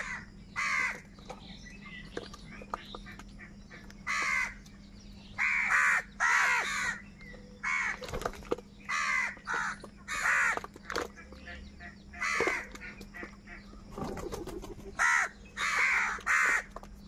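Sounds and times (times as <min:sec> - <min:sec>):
crows cawing: 0:00.0 - 0:01.1, 0:04.0 - 0:04.6, 0:05.4 - 0:07.0, 0:07.6 - 0:08.0, 0:08.9 - 0:10.7, 0:11.8 - 0:13.7, 0:14.9 - 0:16.8.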